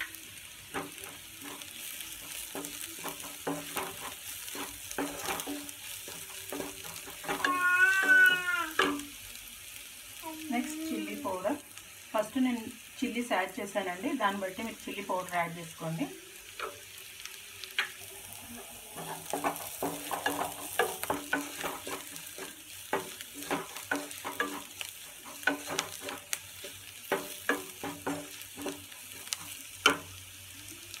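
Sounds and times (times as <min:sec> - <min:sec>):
oil sizzling: 0:00.0 - 0:31.0
wooden spatula scraping a pan: 0:00.7 - 0:09.1, 0:18.5 - 0:30.1.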